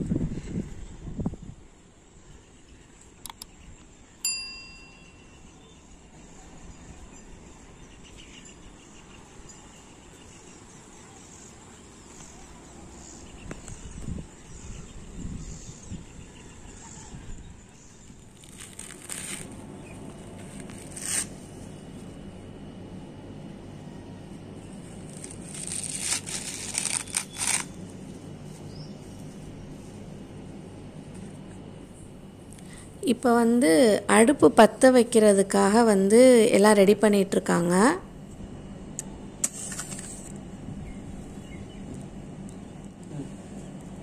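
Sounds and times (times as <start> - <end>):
wind rumble on microphone: 0.0 - 1.8, 13.3 - 17.8
dry husk fibre rustling: 18.0 - 22.2, 24.6 - 31.6.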